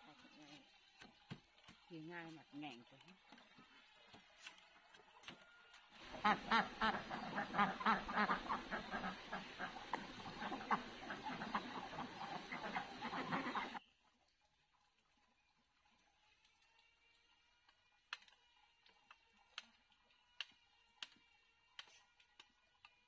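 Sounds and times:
flock of birds chattering: 6.2 - 13.8.

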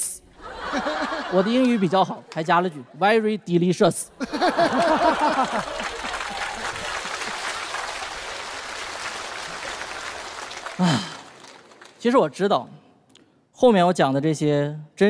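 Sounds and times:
audience laughing: 0.4 - 2.3, 4.2 - 7.9
audience applauding: 4.5 - 12.2.

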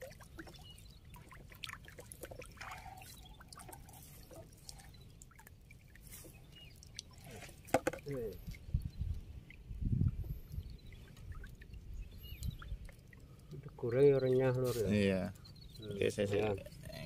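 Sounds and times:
small splashes: 0.0 - 8.6
water trickling and dripping: 0.0 - 17.0.

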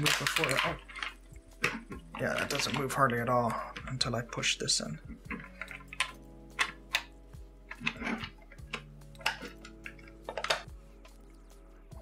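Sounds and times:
plastic puzzle parts clicking: 0.0 - 3.9, 5.2 - 7.1, 7.7 - 10.7.

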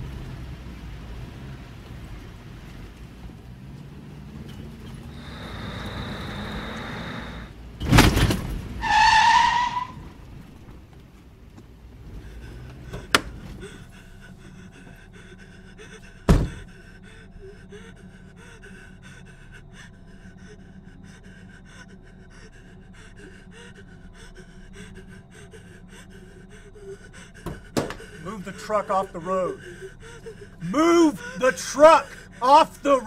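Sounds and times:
low hum: 10.1 - 33.0
man panting and gasping: 12.2 - 33.0
heavy thud: 16.3 - 16.7.

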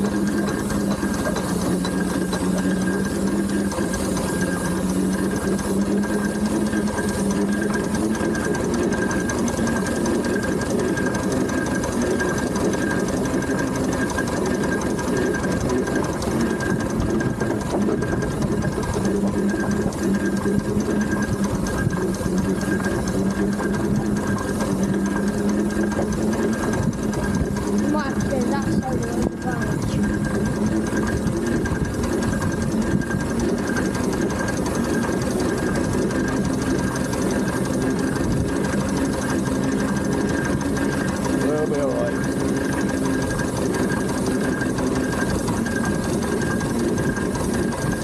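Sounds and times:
steam engine mechanical clatter: 0.0 - 48.0.

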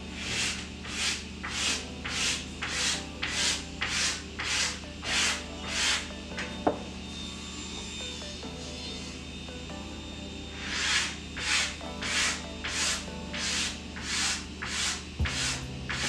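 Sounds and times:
rhythmic rubbing strokes: 0.0 - 9.6, 10.4 - 16.0
wood knocking on wood: 15.2 - 16.0.

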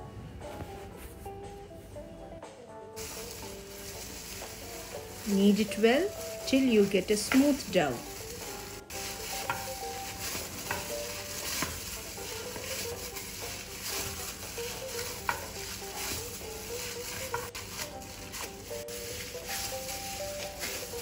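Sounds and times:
faint background music: 0.0 - 21.0
gloved hand kneading dough: 3.0 - 21.0.

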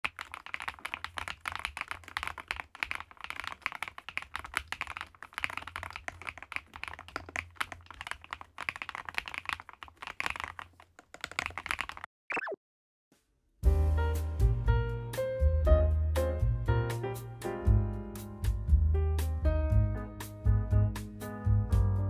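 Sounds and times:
fast mechanical keyboard typing: 0.0 - 12.1.

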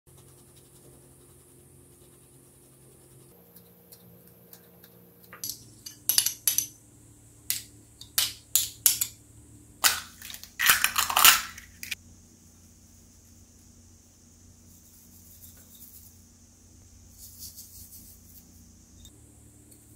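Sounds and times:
faint steady hum: 0.1 - 19.9
metal spoon clinking on dishes: 5.4 - 6.8.

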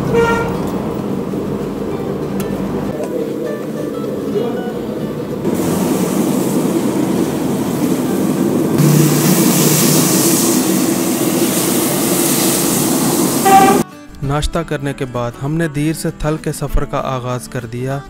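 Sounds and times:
burner flame roaring: 0.0 - 13.8
oil fire flaring up: 5.3 - 13.8
batter sizzling in hot oil: 5.5 - 13.5.

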